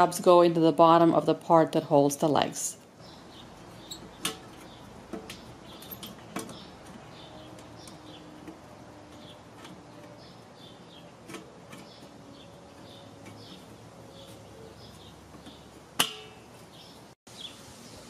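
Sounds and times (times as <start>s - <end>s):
metal clicks and clinks: 3.8s - 8.1s.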